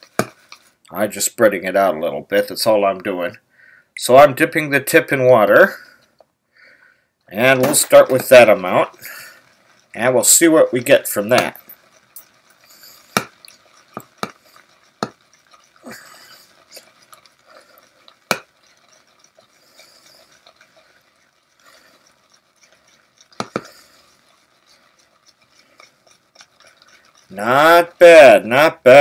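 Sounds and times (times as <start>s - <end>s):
brush clicking against bowl: 7.3s - 29.0s
shaving brush swishing lather: 7.3s - 29.0s.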